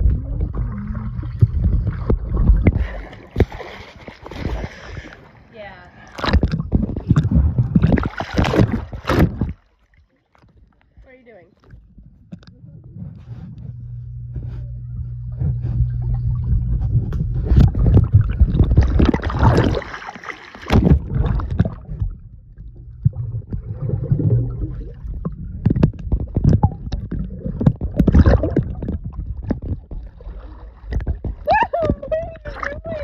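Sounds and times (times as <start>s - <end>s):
underwater water churning: 0.0s - 10.8s, 11.6s - 33.0s
low steady hum: 0.0s - 33.0s
knocks and bubble clicks: 20.7s - 30.1s.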